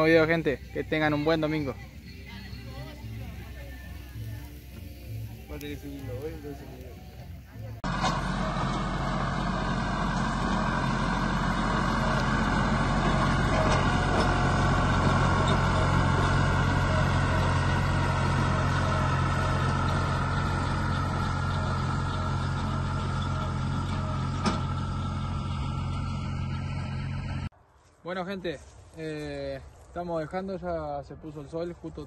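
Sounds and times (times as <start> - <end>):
tractor diesel engine running: 0.0 - 27.5.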